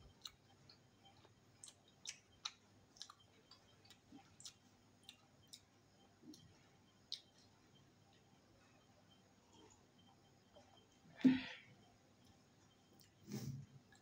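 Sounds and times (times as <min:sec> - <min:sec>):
wet chewing clicks: 0:00.1 - 0:05.7.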